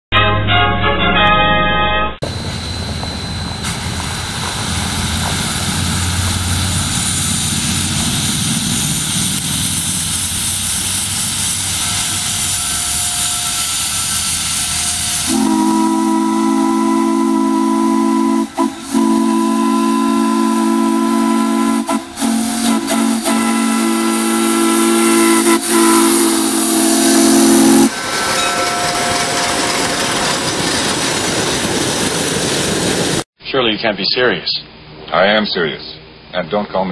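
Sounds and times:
steam whistle chord: 0:00.1 - 0:04.2, 0:11.6 - 0:30.2
steam hissing: 0:02.2 - 0:17.8, 0:18.4 - 0:33.2.

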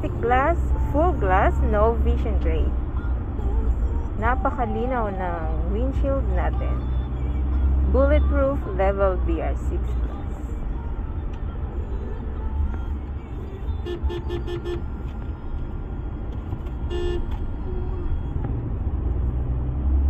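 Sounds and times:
road and engine rumble in cabin: 0:00.0 - 0:20.0
vehicle horn beeps: 0:13.6 - 0:15.0, 0:16.8 - 0:17.4.

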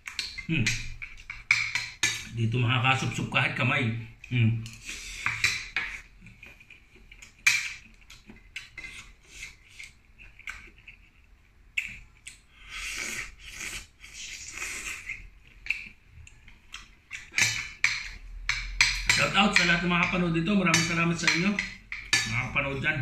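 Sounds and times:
slurping and sucking: 0:12.5 - 0:15.3.

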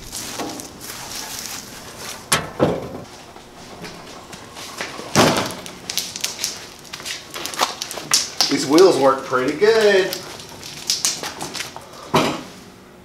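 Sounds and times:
metal frame knocking and rattling: 0:02.3 - 0:03.1.

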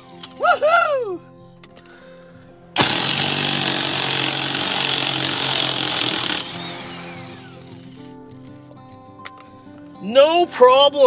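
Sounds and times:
cordless drill motor whine: 0:02.8 - 0:08.0.

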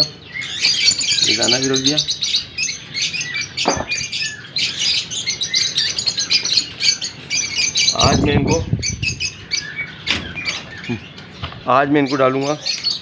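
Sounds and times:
parrots chirping and chattering: 0:00.0 - 0:13.0
knock: 0:03.6 - 0:03.9.

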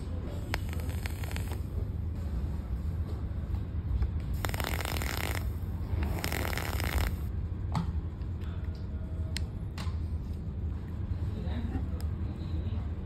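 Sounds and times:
vape hissing: 0:00.4 - 0:01.7, 0:04.4 - 0:07.3.

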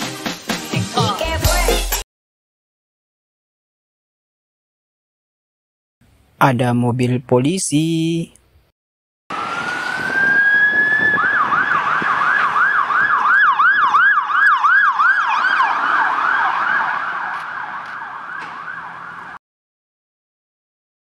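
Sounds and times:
police siren wailing and yelping: 0:09.3 - 0:19.4.

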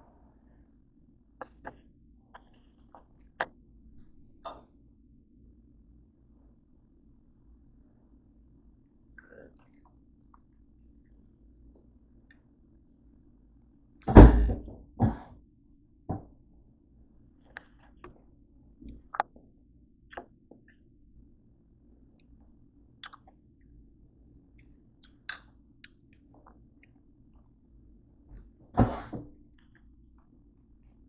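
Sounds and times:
chewing: 0:01.4 - 0:03.5, 0:23.0 - 0:23.4
loud thumps: 0:14.1 - 0:15.3.

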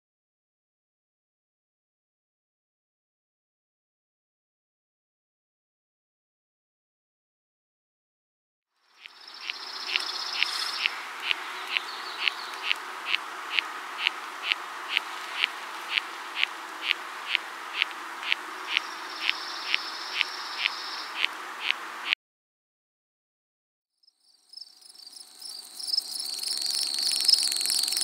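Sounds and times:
steady hiss: 0:08.8 - 0:22.2.

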